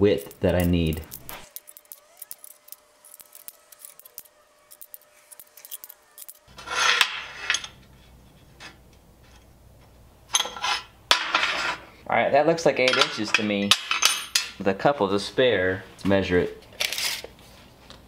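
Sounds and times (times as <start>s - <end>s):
steel bars clinking and sliding: 0.0s - 7.9s, 10.3s - 11.8s.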